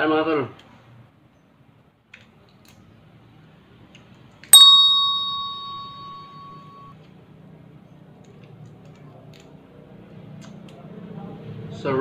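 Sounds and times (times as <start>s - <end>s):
metallic strike ringing: 4.6s - 6.9s.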